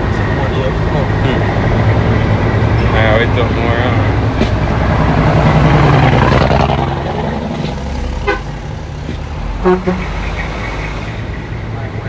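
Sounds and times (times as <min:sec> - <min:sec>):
dump truck engines passing: 0:00.0 - 0:12.0
short horn toot: 0:09.6 - 0:10.1.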